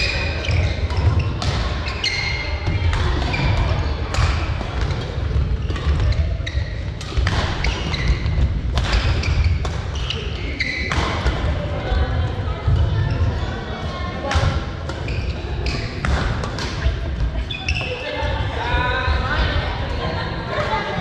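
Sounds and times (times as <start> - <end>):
sneakers squeaking on floor: 0.0 - 11.6, 12.7 - 19.5
rackets smacking shuttlecock: 7.0 - 10.2, 15.8 - 16.8.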